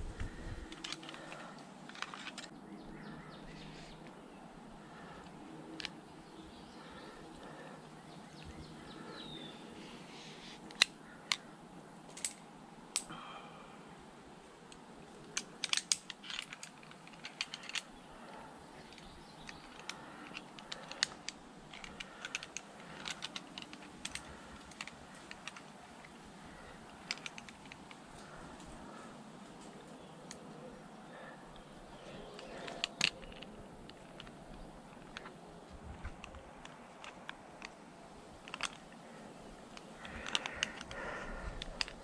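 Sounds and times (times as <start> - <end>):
clicks of climbing hardware: 12.1 - 13.1, 15.2 - 29.0, 32.1 - 37.8, 38.4 - 39.0, 39.7 - 42.0.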